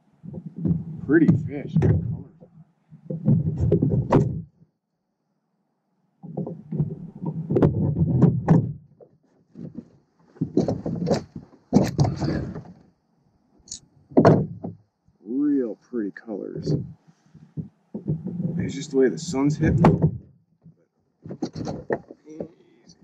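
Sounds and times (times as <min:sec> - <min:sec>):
knocks and thumps on kayak deck: 0:00.3 - 0:04.5, 0:06.2 - 0:12.8, 0:14.1 - 0:14.9, 0:16.7 - 0:18.7, 0:19.6 - 0:20.3, 0:21.2 - 0:22.6.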